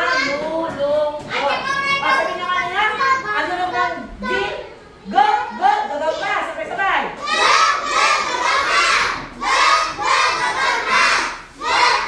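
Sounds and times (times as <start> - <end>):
children calling out together: 7.2 - 12.0.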